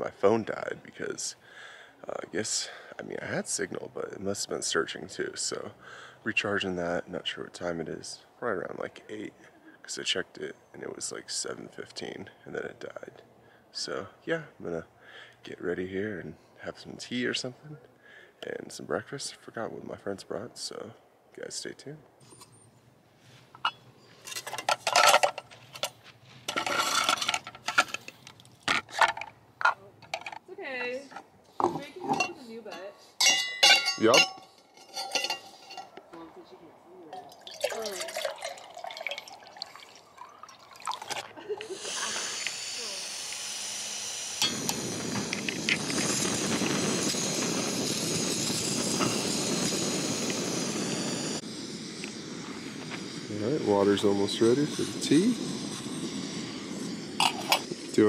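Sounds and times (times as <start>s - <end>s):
metal pot and lid clinking: 32.0s - 36.0s
gas stove hissing: 41.4s - 58.0s
burner flame rushing: 44.1s - 58.0s.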